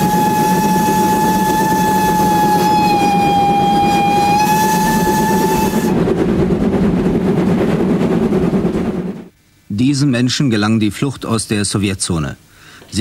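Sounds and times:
steam locomotive whistle: 0:00.0 - 0:06.0
locomotive low rumble: 0:00.0 - 0:09.4.

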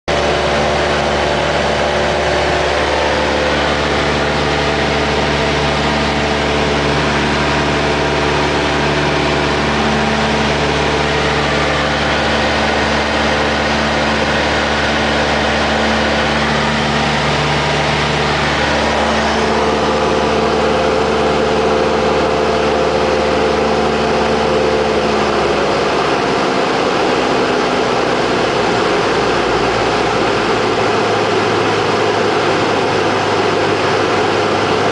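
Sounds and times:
rushing air noise: 0:00.1 - 0:22.1
aircraft engine and propeller: 0:00.1 - 0:34.9.

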